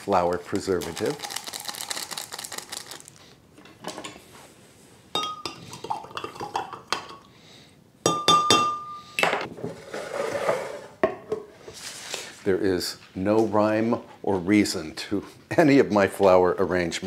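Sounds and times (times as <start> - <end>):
glass vase clinking: 5.1 - 7.3, 8.0 - 9.4.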